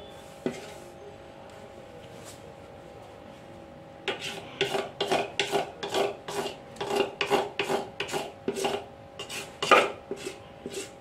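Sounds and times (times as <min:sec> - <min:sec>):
metal spoon scraping bowl: 0:04.1 - 0:11.0.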